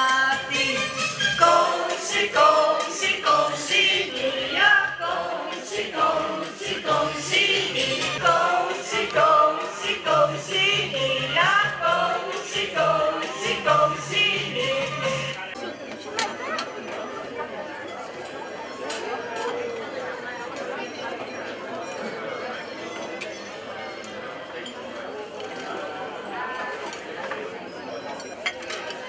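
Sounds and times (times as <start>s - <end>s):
woman singing into microphone: 0.0s - 15.0s
musical accompaniment: 0.0s - 15.6s.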